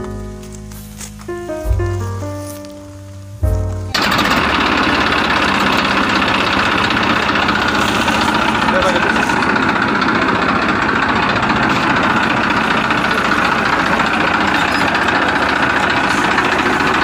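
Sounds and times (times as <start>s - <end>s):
tractor engine idling: 0.0s - 17.0s.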